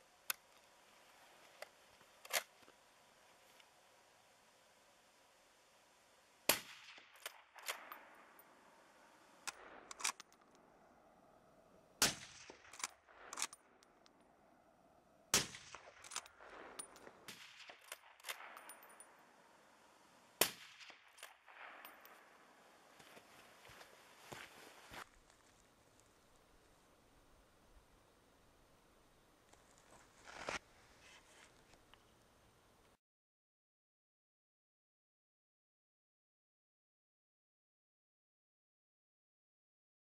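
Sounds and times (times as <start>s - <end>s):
suppressed rifle shots: 6.5s - 8.4s, 12.0s - 13.8s, 15.3s - 19.3s, 20.4s - 22.5s
rifle bolt clicking: 9.5s - 10.4s, 12.6s - 14.0s.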